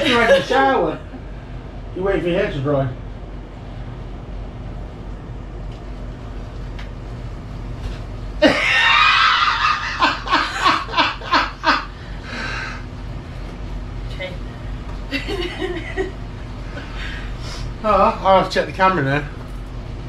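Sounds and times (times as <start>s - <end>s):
burst of laughter: 8.4s - 11.9s.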